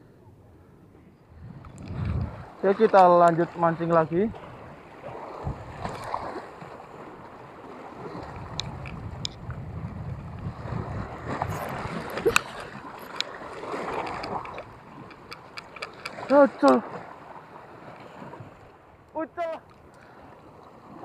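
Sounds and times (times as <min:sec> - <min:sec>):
sea water lapping: 0:00.7 - 0:21.0
wind buffeting microphone: 0:01.2 - 0:18.7
sharp clicks: 0:14.0 - 0:16.8.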